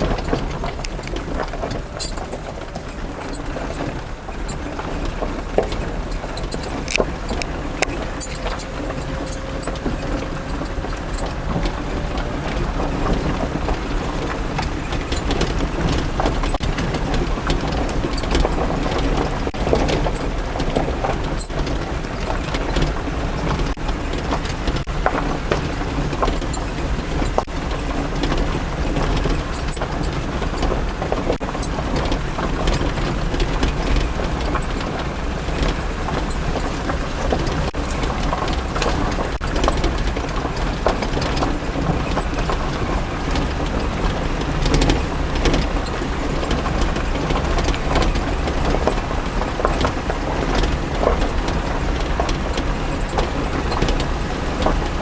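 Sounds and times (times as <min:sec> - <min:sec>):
vehicle engine rumble: 0:00.0 - 0:55.0
vehicle rattling and clanking: 0:00.0 - 0:55.0.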